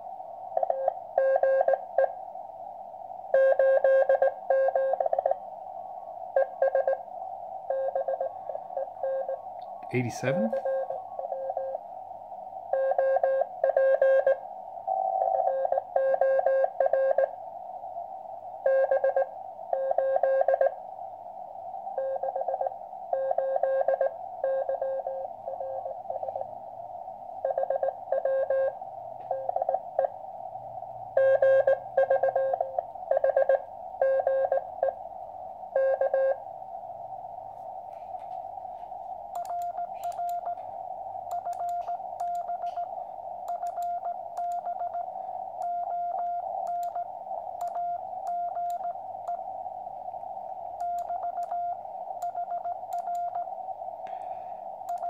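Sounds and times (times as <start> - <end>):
receiver hiss: 0.0 - 55.0
morse code beeping: 31.2 - 34.6, 39.4 - 40.6, 41.3 - 42.9, 43.5 - 49.0, 50.8 - 53.5.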